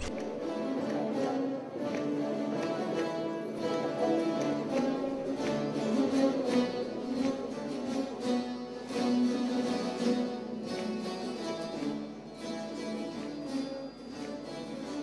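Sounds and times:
long-necked lutes playing folk tune: 0.0s - 15.0s.

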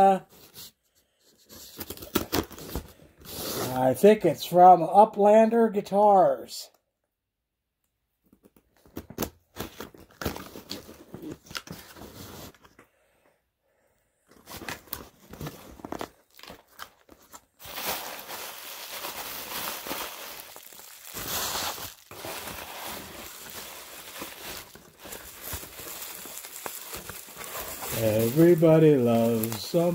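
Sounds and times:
bubble wrap crinkling: 14.4s - 29.9s
cardboard box tearing and scraping: 20.4s - 29.9s.

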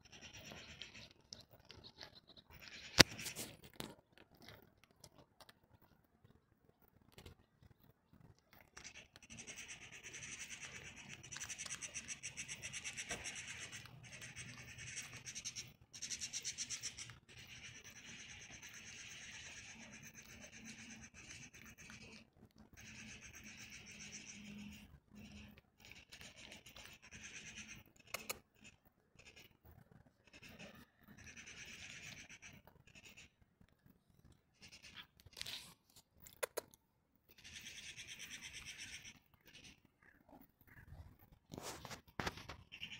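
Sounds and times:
cat crunching dry kibble: 3.0s - 5.8s, 10.6s - 12.3s
sharp clicks: 28.0s - 28.4s.

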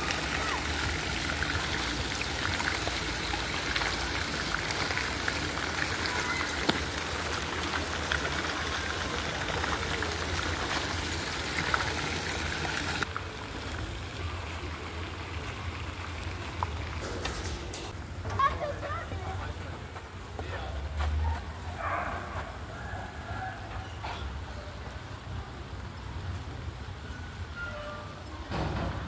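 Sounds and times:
fountain water splashing: 0.0s - 17.0s.

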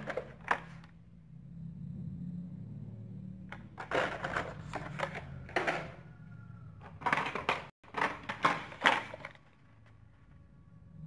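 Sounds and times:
plastic blister packs clattering: 3.8s - 5.9s, 6.9s - 9.6s.

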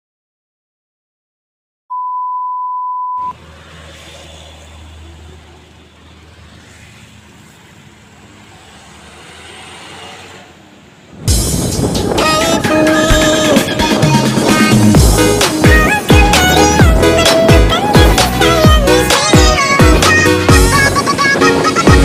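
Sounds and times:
steady pure beep tone: 1.9s - 3.4s
traffic: 3.2s - 22.0s
diesel truck engine rumble: 3.4s - 22.0s.

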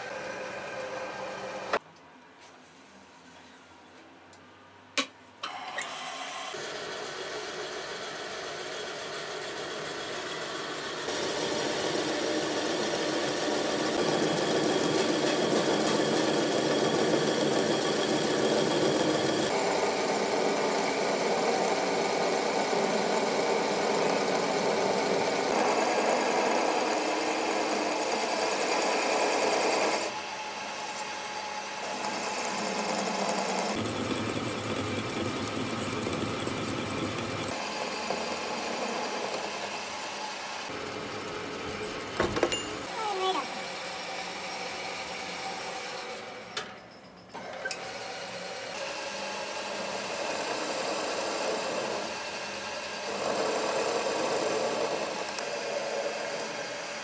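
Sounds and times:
machine cutting noise: 5.8s - 40.8s, 47.3s - 57.0s
machinery humming: 9.4s - 25.8s.

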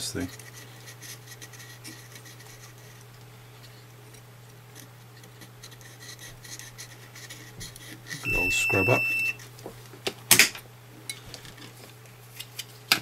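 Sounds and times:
steady low hum: 0.0s - 10.0s
soldering iron scraping: 4.7s - 9.5s.

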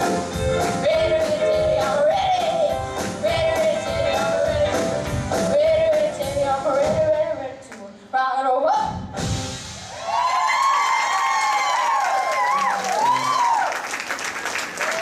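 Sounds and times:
rock and roll music: 0.0s - 7.4s, 8.7s - 10.0s.

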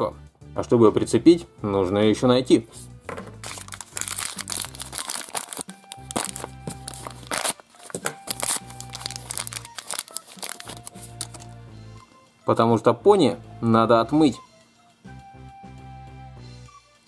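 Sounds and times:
background music: 0.0s - 17.0s
plastic packaging crinkling and tearing: 3.4s - 11.6s.

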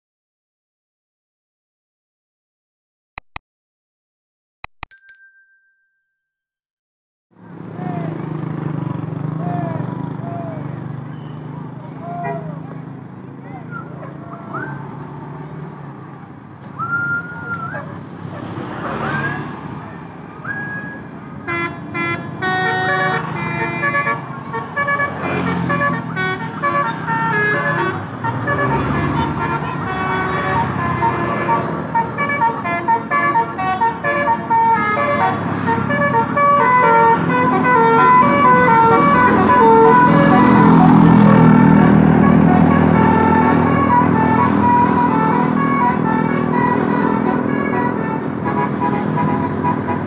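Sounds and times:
diesel bus engine: 7.4s - 50.0s
multi-tone horn melody: 21.4s - 50.0s.

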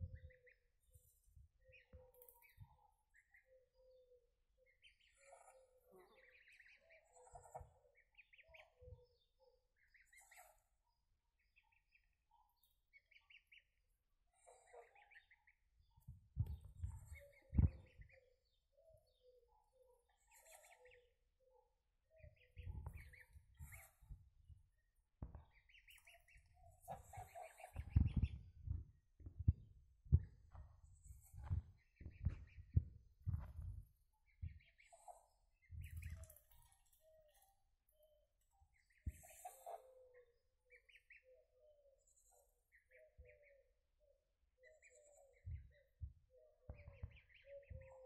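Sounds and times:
goslings peeping: 4.8s - 8.8s, 16.5s - 18.2s, 22.4s - 24.3s, 25.5s - 28.3s, 31.0s - 32.8s, 33.4s - 37.0s, 38.7s - 39.8s, 46.8s - 47.8s.

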